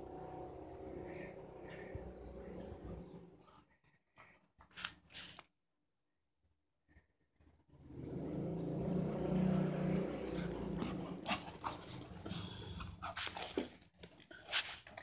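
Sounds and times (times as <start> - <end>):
dog growling low: 7.9 - 13.2.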